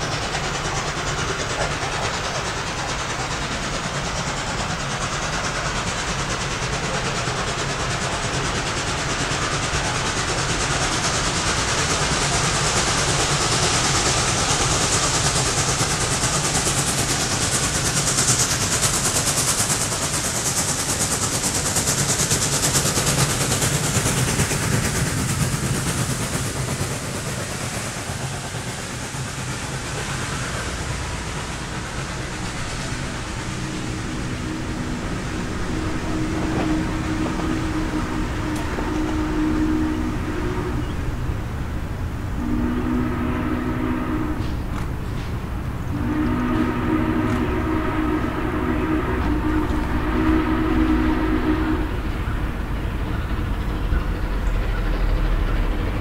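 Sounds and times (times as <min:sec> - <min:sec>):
steam locomotive passing: 0:00.0 - 0:56.0.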